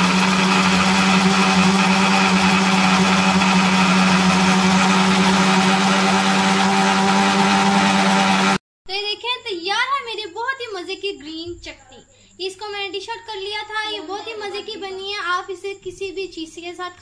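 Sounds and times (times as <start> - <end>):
mixer grinder motor whining: 0.0 - 8.6.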